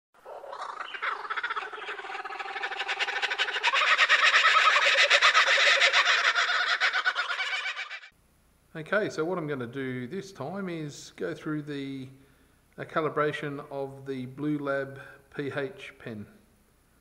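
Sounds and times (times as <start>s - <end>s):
chorus of animal calls: 0.2s - 8.1s.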